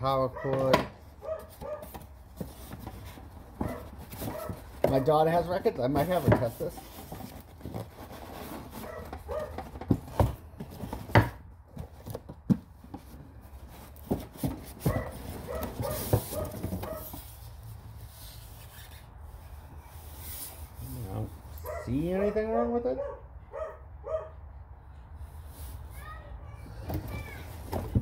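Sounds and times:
cardboard box and foam handled: 0:00.4 - 0:21.4, 0:26.8 - 0:28.0.

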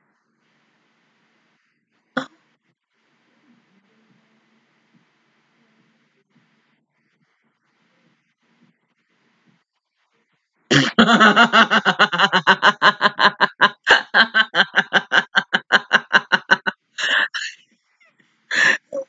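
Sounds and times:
woman laughing: 0:10.7 - 0:17.6, 0:18.5 - 0:19.0.

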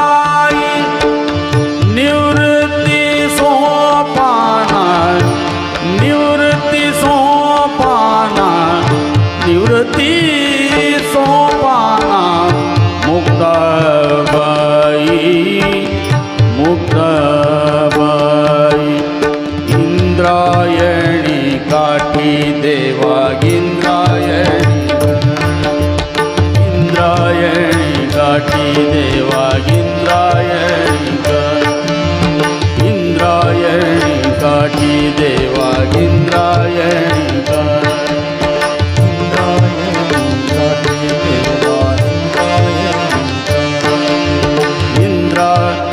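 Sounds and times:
harmonium notes: 0:00.0 - 0:45.9
man singing devotional song: 0:00.0 - 0:45.9
tabla rhythm: 0:00.0 - 0:45.9.

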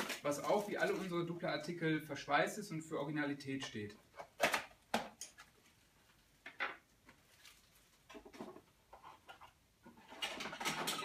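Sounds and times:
soft handling sounds: 0:00.0 - 0:01.7, 0:07.0 - 0:09.6
wrapping and cardboard rustling: 0:00.0 - 0:01.7, 0:07.2 - 0:08.6.

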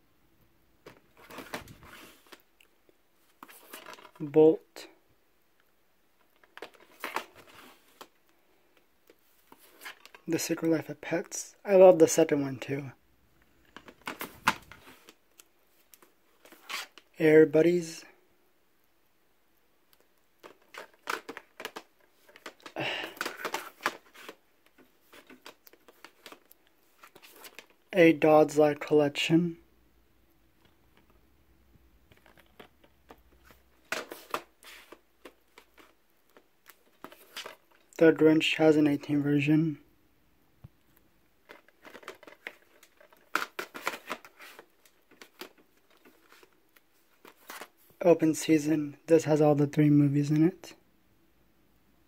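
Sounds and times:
plastic cases clicking and scraping: 0:00.8 - 0:02.5, 0:03.3 - 0:04.2, 0:06.2 - 0:10.2, 0:13.6 - 0:15.2, 0:20.0 - 0:27.9, 0:32.0 - 0:38.0, 0:41.4 - 0:47.8.

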